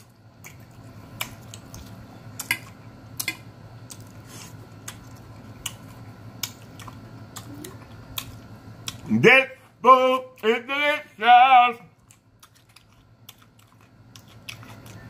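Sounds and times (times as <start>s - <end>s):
close chewing: 0.0s - 9.1s, 11.9s - 15.0s
steady low hum: 0.0s - 15.0s.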